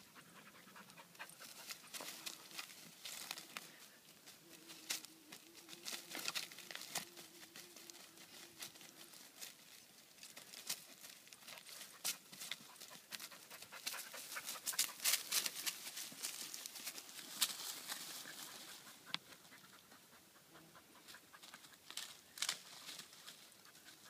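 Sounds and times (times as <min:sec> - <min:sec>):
dog panting: 0:00.0 - 0:02.7, 0:11.4 - 0:15.9, 0:17.9 - 0:21.8
plants and twigs rustling: 0:01.1 - 0:19.8, 0:21.0 - 0:24.0.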